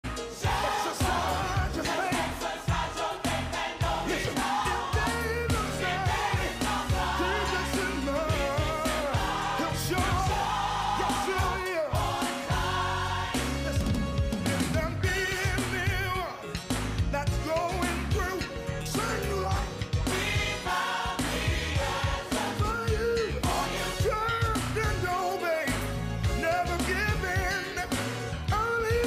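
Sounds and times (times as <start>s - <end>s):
voices singing with vibrato: 0.1s - 15.8s, 18.9s - 25.8s
band with bass and drums: 13.4s - 20.5s.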